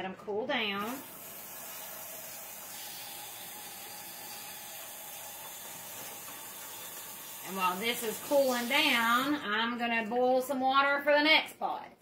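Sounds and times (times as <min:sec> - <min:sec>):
tap water pouring into colander: 0:00.9 - 0:09.4.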